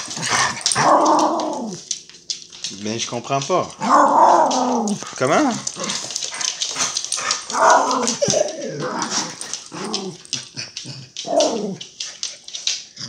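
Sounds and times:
dog growly moans and whines: 0:00.0 - 0:01.9, 0:03.8 - 0:12.0.

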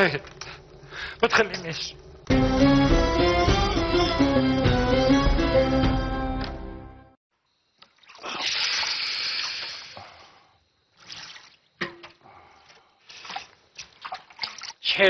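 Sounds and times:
water splashing in a basin: 0:07.8 - 0:10.1, 0:10.9 - 0:12.2, 0:13.1 - 0:15.0
water dripping: 0:10.9 - 0:14.9.

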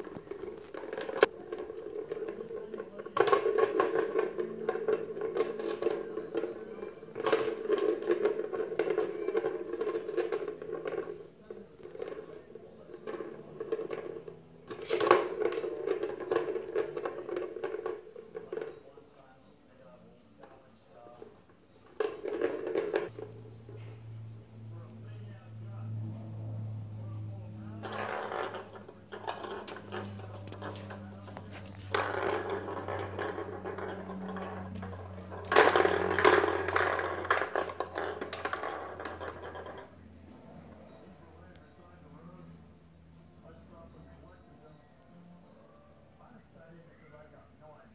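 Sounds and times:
balls rolling in plastic track: 0:00.0 - 0:18.9, 0:20.4 - 0:23.8, 0:26.6 - 0:40.9.

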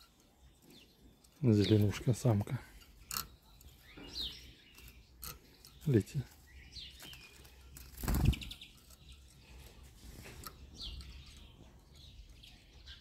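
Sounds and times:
bird wings flapping: 0:07.9 - 0:08.6.

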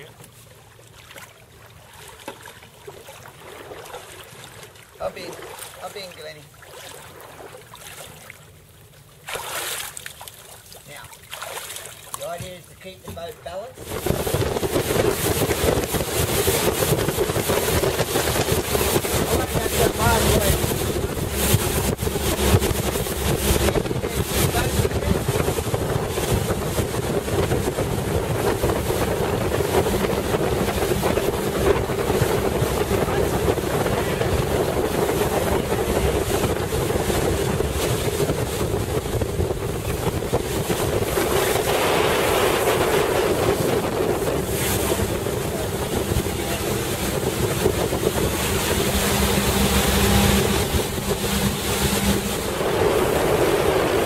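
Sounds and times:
boat motor running: 0:12.1 - 0:54.0
wind buffeting microphone: 0:13.8 - 0:54.0.

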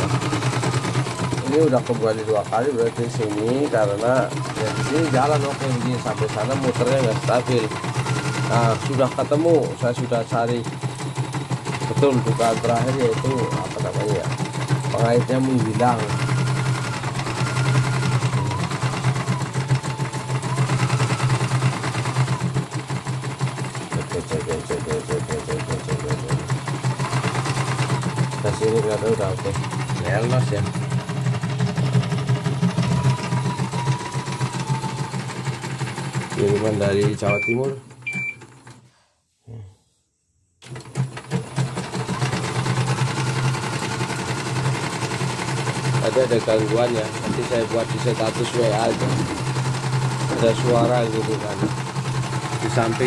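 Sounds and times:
machine whine: 0:00.0 - 0:38.4, 0:40.7 - 0:53.0
embroidery machine needle running: 0:00.0 - 0:38.8, 0:40.6 - 0:53.0
short electronic beep: 0:37.2 - 0:38.4.

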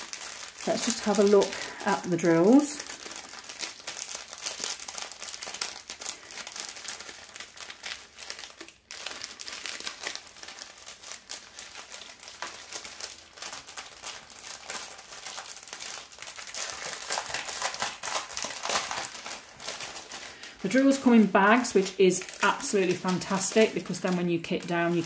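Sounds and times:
plastic bags crinkling: 0:00.0 - 0:25.0.

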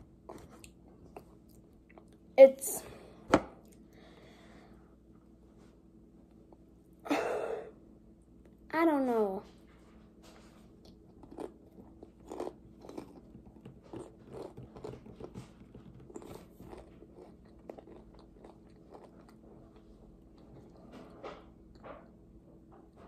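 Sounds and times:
person chewing crisps: 0:10.8 - 0:20.8.

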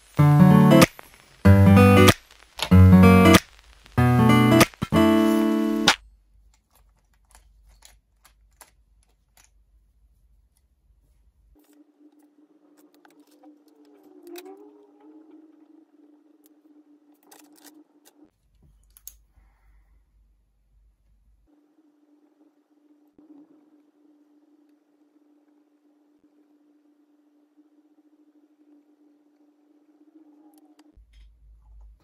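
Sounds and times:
guitar music: 0:00.0 - 0:03.4, 0:04.0 - 0:06.0.

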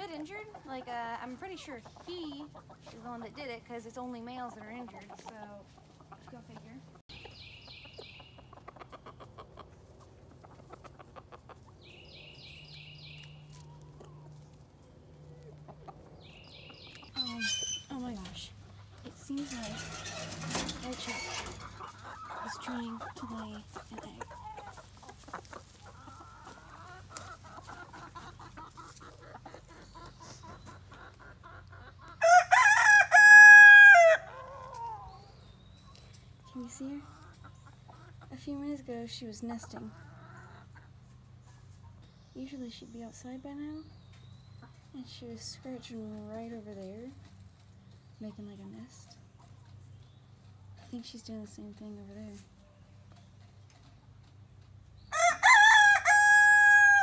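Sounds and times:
chickens clucking: 0:00.0 - 0:57.0
rooster crowing: 0:32.2 - 0:34.4, 0:55.1 - 0:57.0.

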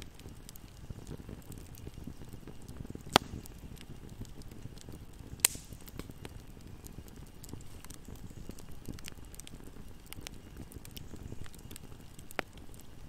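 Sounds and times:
faint crackling: 0:00.0 - 0:13.0
low flutter of flames: 0:00.0 - 0:13.0
loud sharp pops from logs: 0:01.5 - 0:03.9, 0:05.3 - 0:12.8.

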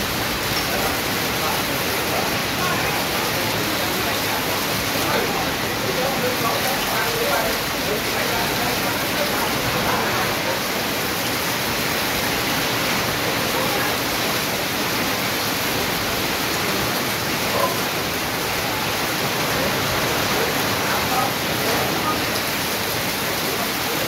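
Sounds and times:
heavy rain on metal roof: 0:00.0 - 0:24.0
runoff pouring off roof: 0:00.0 - 0:24.0.

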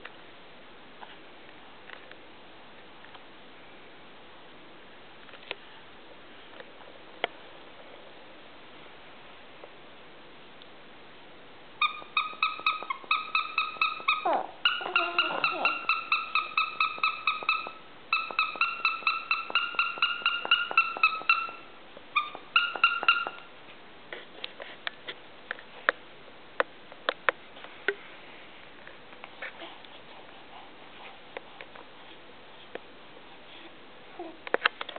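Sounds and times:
toy chirping beeps: 0:11.8 - 0:23.4.

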